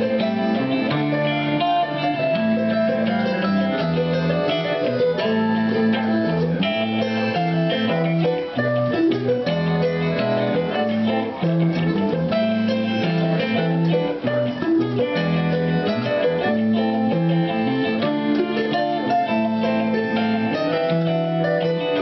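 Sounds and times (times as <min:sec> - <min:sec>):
accordion chords: 0:00.0 - 0:22.0
electric guitar: 0:00.0 - 0:22.0
plucked and strummed guitars: 0:00.0 - 0:22.0
small plucked string instrument: 0:00.0 - 0:22.0.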